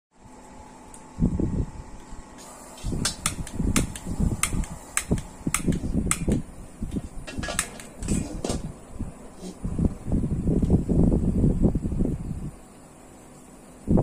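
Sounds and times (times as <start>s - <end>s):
lighter clicking: 3.0s - 6.4s.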